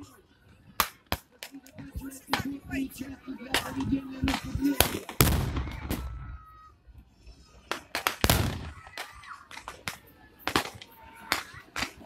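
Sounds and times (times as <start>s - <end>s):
sharp cracks: 0.8s - 1.6s, 7.7s - 12.0s
pyrotechnic blasts with rumble: 4.2s - 6.4s, 8.1s - 8.9s.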